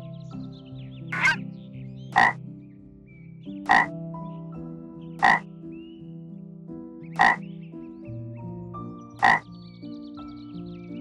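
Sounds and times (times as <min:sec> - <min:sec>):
soft background music: 0:00.0 - 0:11.0
frog croaking: 0:01.1 - 0:01.4, 0:02.2 - 0:02.4, 0:03.7 - 0:03.9, 0:05.2 - 0:05.5, 0:07.2 - 0:07.4, 0:09.2 - 0:09.4.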